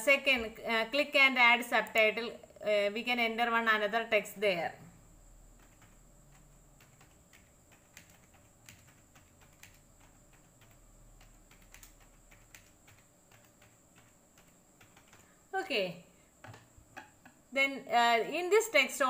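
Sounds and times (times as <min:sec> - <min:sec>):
typing on computer keyboard: 0:05.6 - 0:15.3.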